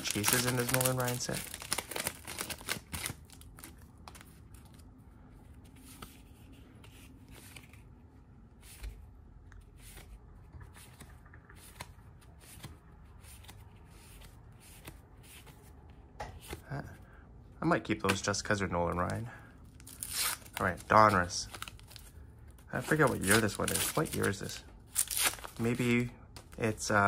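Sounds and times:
cards flipped by hand: 0.0 - 4.8, 5.7 - 7.9, 9.8 - 15.7.

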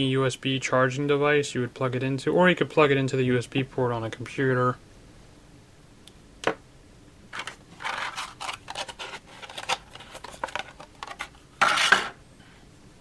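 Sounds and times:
plastic packaging crackling and clicking: 7.4 - 12.1.

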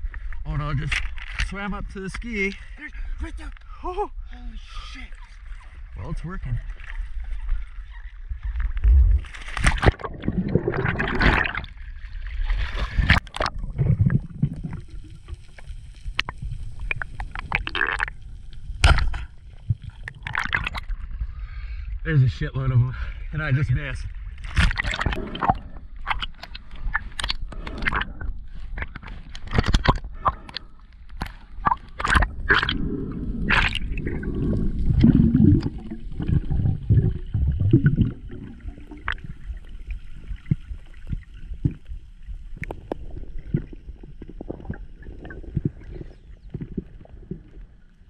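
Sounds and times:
water sloshing and gurgling: 0.0 - 48.0
low rumble: 32.2 - 39.6.

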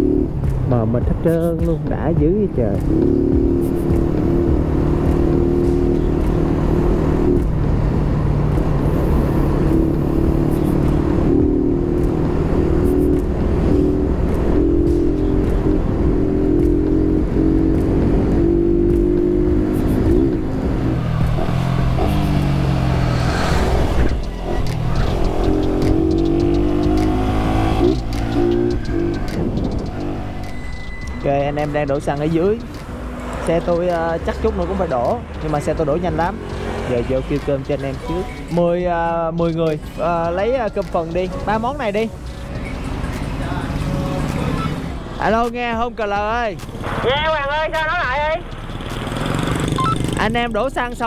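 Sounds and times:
motorcycle engine running: 1.4 - 38.7, 48.2 - 51.0.

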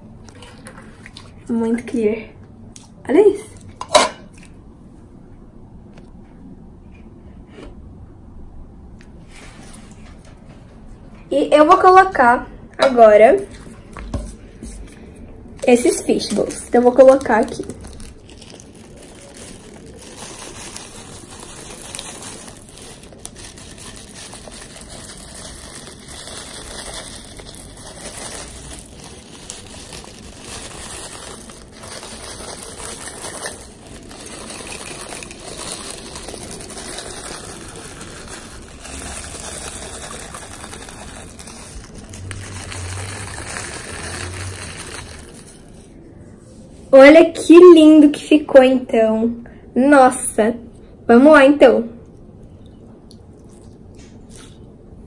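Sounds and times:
beads crinkling on slime: 15.6 - 45.9.

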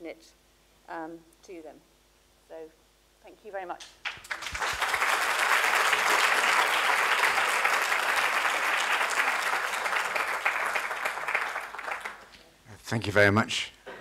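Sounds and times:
audience applauding: 4.0 - 12.4.

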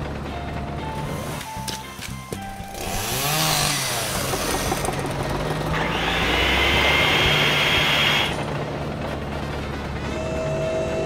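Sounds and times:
power saw cutting wood: 0.9 - 1.8, 2.4 - 8.6.

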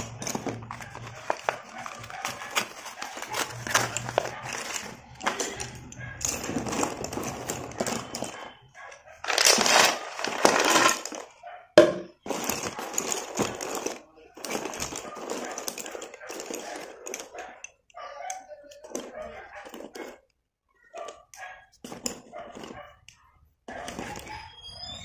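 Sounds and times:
scraping clatter: 0.0 - 11.4, 12.1 - 17.7, 18.8 - 20.3, 21.8 - 23.1
slate pencils clicking and clattering: 0.0 - 24.7.

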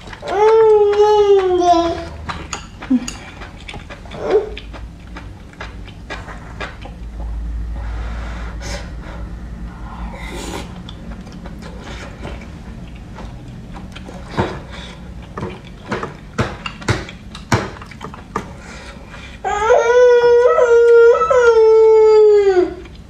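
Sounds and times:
slurping and chewing: 0.0 - 7.2, 9.8 - 19.4.

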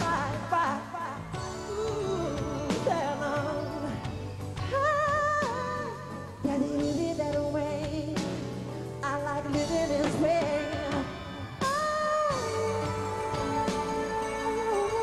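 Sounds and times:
band playing: 0.0 - 6.0, 9.2 - 15.0.

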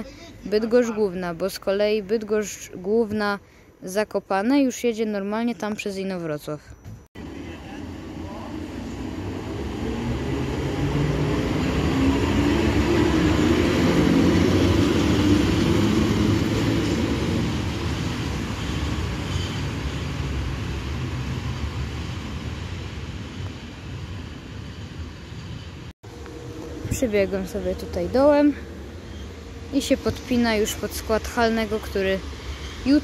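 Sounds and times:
electric locomotive passing: 7.2 - 33.0.

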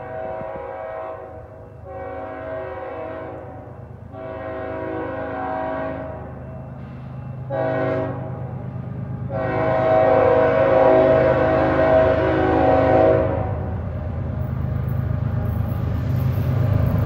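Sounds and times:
locomotive horn blasts: 0.0 - 6.4, 7.4 - 8.6, 9.3 - 13.8.

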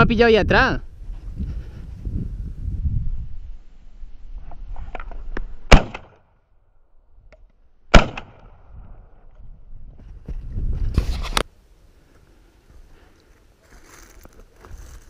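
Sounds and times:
shotgun shots: 5.7 - 6.2, 7.9 - 8.6.

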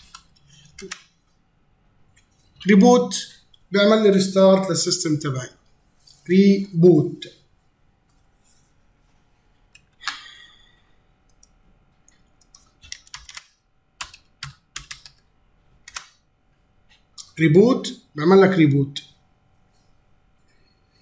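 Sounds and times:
computer keyboard typing: 0.0 - 1.2, 11.3 - 16.2.

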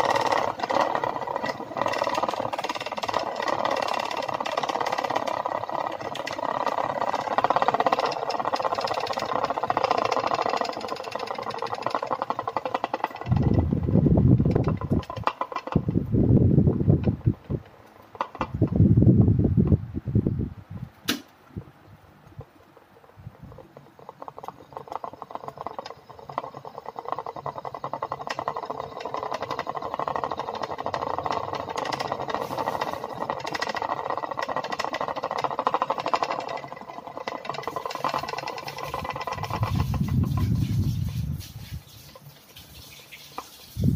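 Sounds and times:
propeller toy rattling whir: 0.0 - 21.0, 22.2 - 43.9
sharp click: 21.0 - 21.4.

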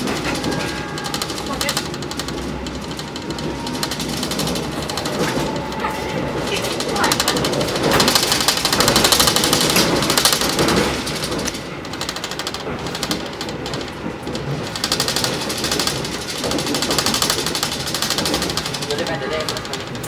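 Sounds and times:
passenger train rattling: 0.0 - 20.0.

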